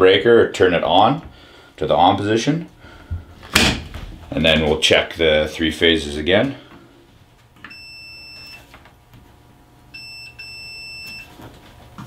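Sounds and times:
multimeter continuity beeps: 0:07.6 - 0:08.7, 0:09.9 - 0:11.4.

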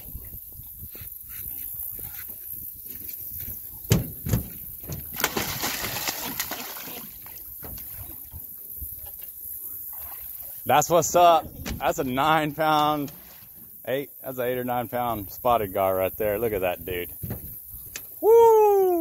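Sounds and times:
sharp knocks: 0:03.9 - 0:05.2
water splashing: 0:04.3 - 0:08.6, 0:09.7 - 0:11.2, 0:11.8 - 0:13.8.

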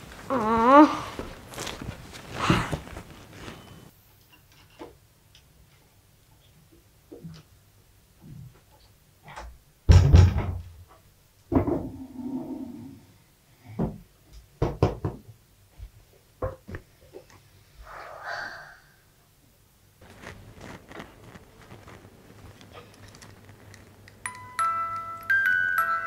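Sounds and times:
chair scuffing: 0:00.0 - 0:03.9, 0:20.0 - 0:24.0.

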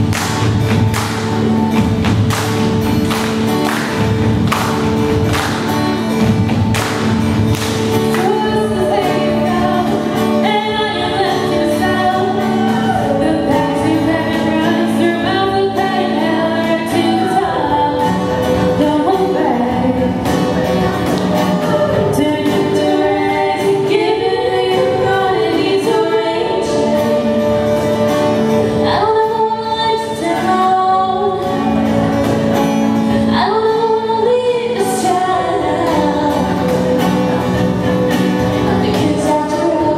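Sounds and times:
women singing a cappella harmony: 0:08.2 - 0:20.6, 0:21.6 - 0:31.8, 0:33.1 - 0:37.4, 0:38.8 - 0:39.9.

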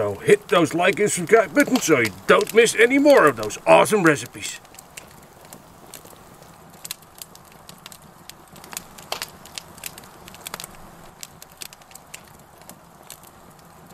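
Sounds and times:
campfire crackling and popping: 0:00.0 - 0:13.9
faint steady hiss: 0:00.0 - 0:13.9.

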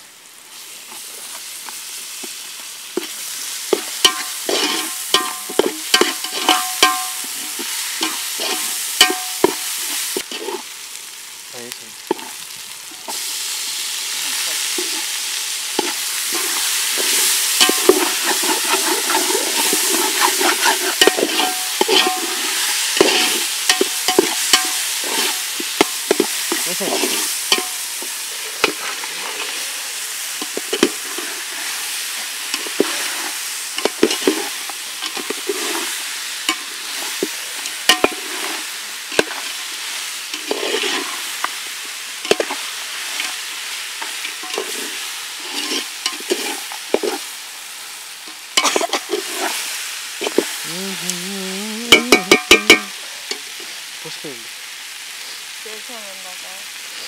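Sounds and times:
onions sizzling: 0:00.0 - 0:57.0
metal spatula scraping a pot: 0:03.0 - 0:10.7, 0:15.8 - 0:27.8, 0:28.4 - 0:29.6, 0:30.3 - 0:31.8, 0:32.5 - 0:39.6, 0:40.3 - 0:41.3, 0:44.0 - 0:47.2, 0:48.6 - 0:49.6.

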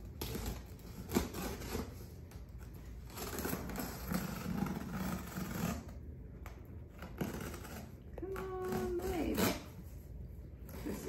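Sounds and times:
scraping on cardboard: 0:00.0 - 0:06.0, 0:06.8 - 0:10.0
packing tape being pulled: 0:00.0 - 0:09.9.

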